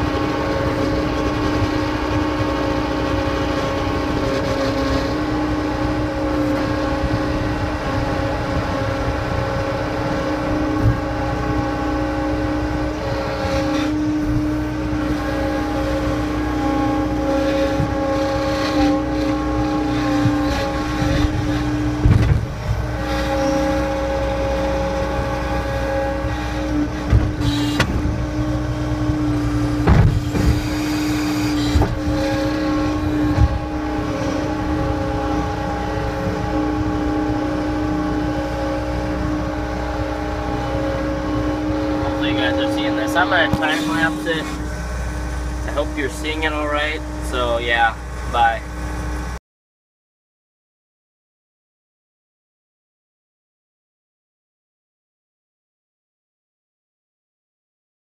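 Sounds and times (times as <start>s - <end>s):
diesel engine running: 0.0s - 49.4s
machine clunks: 22.0s - 22.8s, 27.0s - 28.2s, 29.8s - 31.0s.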